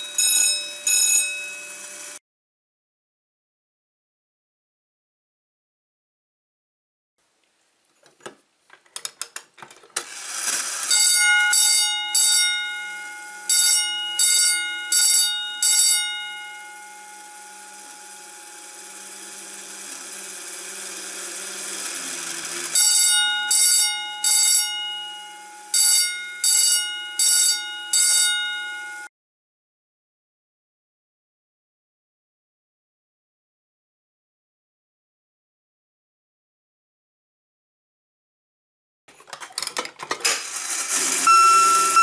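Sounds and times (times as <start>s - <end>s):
vibrating bell ringing in bursts: 0.0s - 2.2s, 10.9s - 19.8s, 22.6s - 29.1s.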